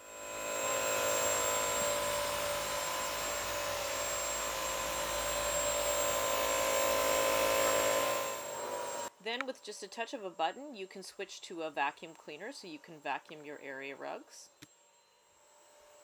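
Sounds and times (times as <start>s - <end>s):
wet-dry vacuum motor drone: 0.0s - 9.1s.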